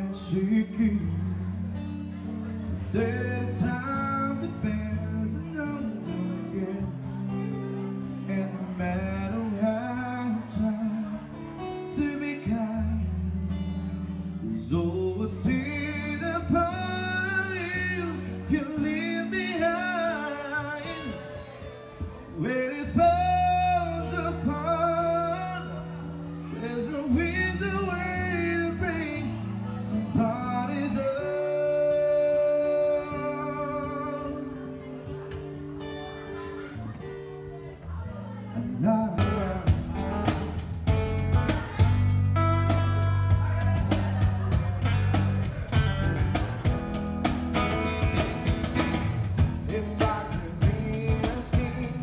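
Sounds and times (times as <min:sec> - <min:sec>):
man singing: 0:00.0 - 0:35.4, 0:37.6 - 0:52.0
second guitar: 0:00.0 - 0:52.0
strummed acoustic guitar: 0:00.0 - 0:52.0
low bass notes: 0:39.0 - 0:52.0.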